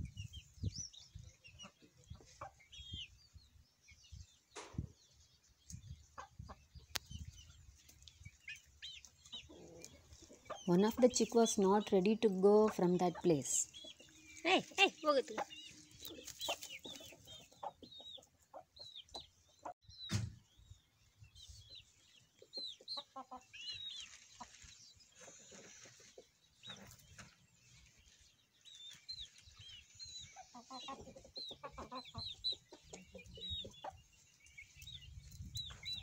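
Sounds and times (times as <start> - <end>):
chickens clucking: 0.0 - 20.2, 21.0 - 36.0.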